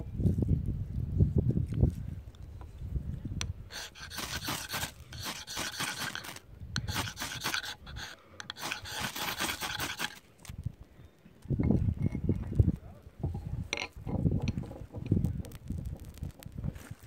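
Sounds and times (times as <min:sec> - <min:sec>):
striker scraping ferro rod: 0:03.7 - 0:10.5.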